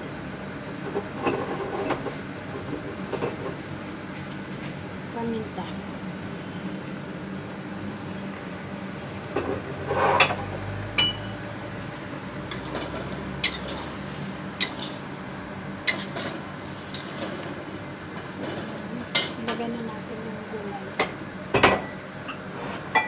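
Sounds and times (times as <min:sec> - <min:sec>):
steady low hum: 0:04.9 - 0:21.5
utensil scraping a wok: 0:09.5 - 0:11.3, 0:12.4 - 0:15.0, 0:15.8 - 0:17.6.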